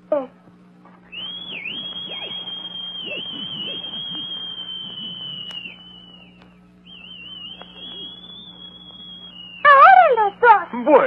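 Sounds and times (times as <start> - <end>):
person whistling: 1.1 - 9.8.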